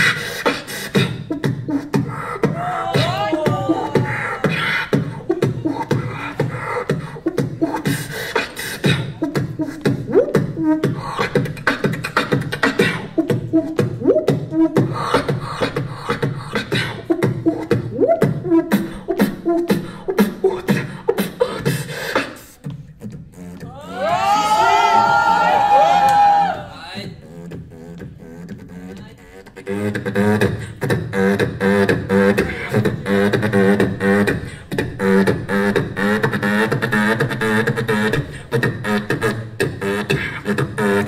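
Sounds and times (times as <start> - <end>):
beatboxing into microphone: 0.0 - 41.0.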